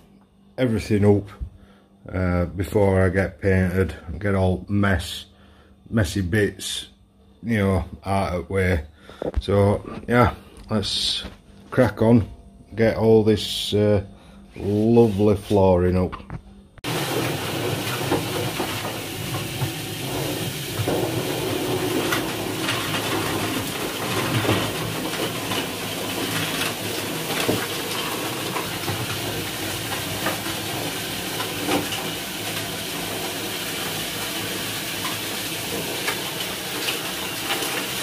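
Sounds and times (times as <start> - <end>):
floor sweeper brushes whirring: 13.4 - 16.0, 16.8 - 38.0.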